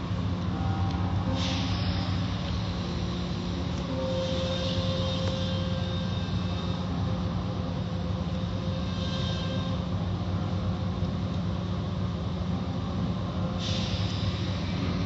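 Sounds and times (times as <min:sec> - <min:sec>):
car wash machinery humming: 0:00.0 - 0:09.0.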